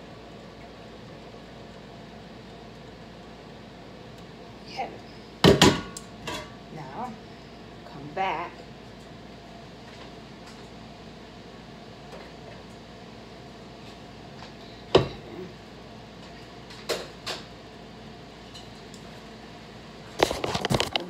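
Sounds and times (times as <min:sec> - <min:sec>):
steady low hum: 0:00.0 - 0:21.0
kitchen knocks: 0:05.4 - 0:05.9.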